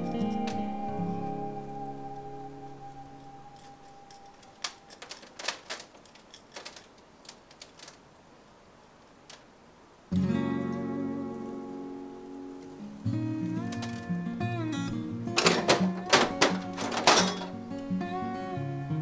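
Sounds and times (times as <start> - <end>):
acoustic guitar chords: 0.0 - 4.6, 10.1 - 19.0.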